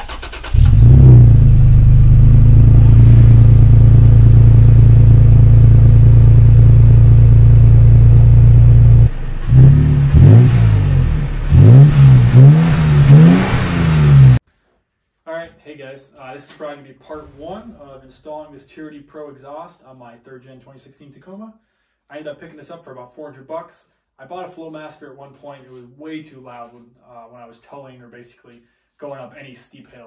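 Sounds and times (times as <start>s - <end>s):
truck engine idling and revving: 0.0s - 14.4s.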